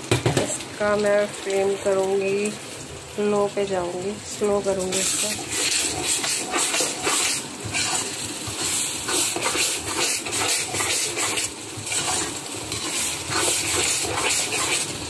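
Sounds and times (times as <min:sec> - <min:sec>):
masala sizzling in a pan: 0:00.0 - 0:15.0
spoon stirring and scraping pan: 0:04.8 - 0:15.0.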